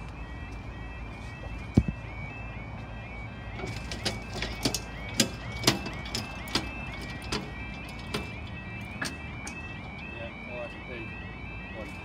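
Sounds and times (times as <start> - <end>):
level crossing alarm yelping: 0.0 - 12.0
sharp clicks and knocks: 3.6 - 9.7.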